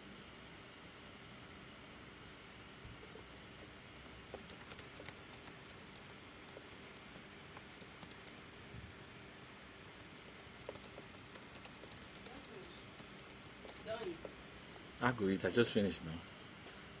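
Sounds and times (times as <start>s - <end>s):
steady hiss: 4.4s - 9.2s, 9.8s - 16.2s.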